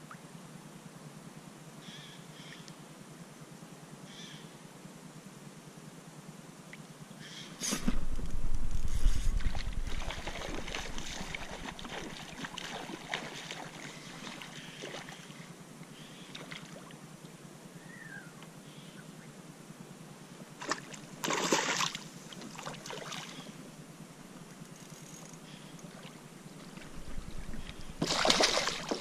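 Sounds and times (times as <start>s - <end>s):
knocking and rumble on kayak: 7.8s - 12.2s, 26.6s - 28.2s.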